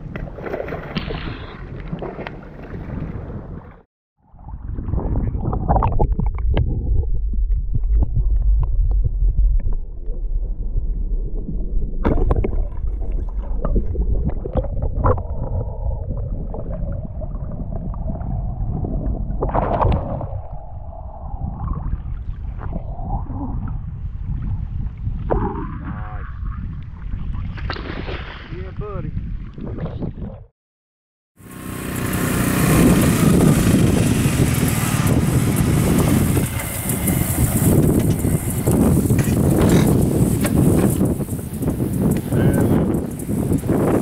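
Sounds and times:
muffled underwater water rumble: 0.0 - 27.7.

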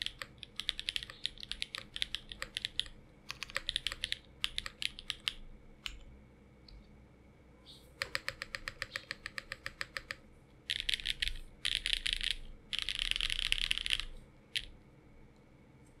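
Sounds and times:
mechanical keyboard keystrokes: 0.0 - 6.0, 8.0 - 14.7.

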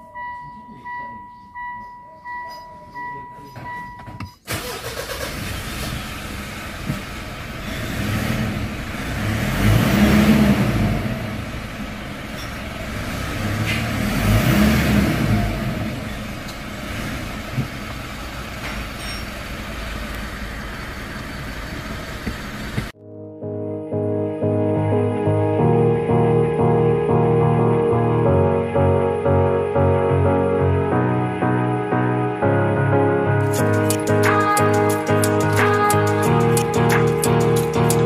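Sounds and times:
diesel engine idling and revving: 4.5 - 23.0.

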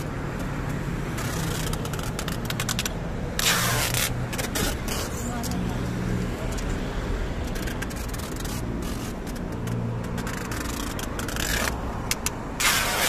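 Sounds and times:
vehicle engine hum: 0.0 - 13.0.

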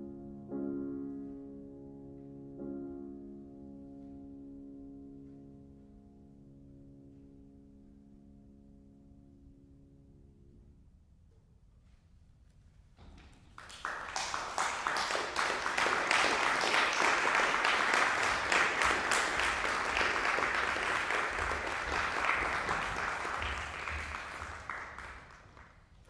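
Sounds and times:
audience applauding: 13.5 - 26.0.

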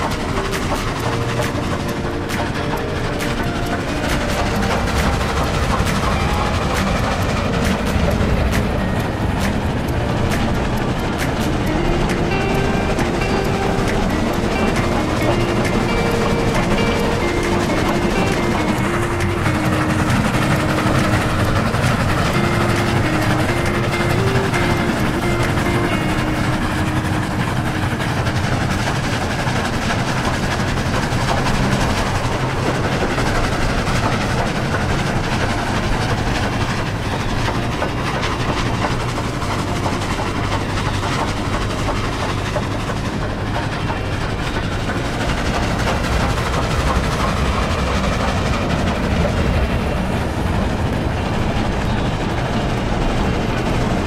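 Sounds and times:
steam train running on rails: 0.0 - 54.0.

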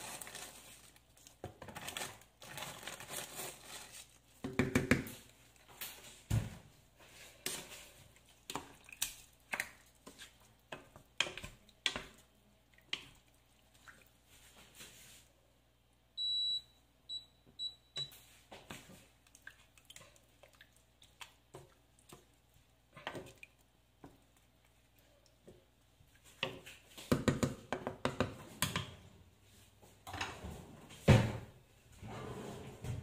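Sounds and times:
hob control beeps: 16.2 - 18.1.

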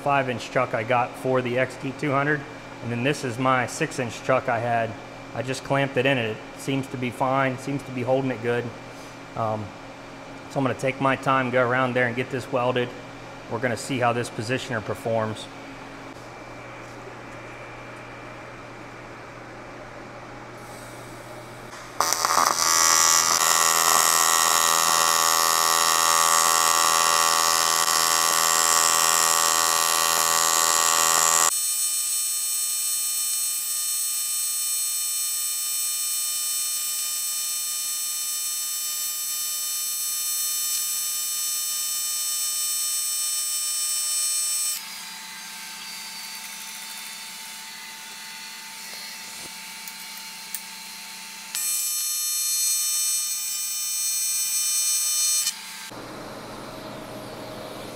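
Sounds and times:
welding arc buzzing: 20.6 - 57.9.

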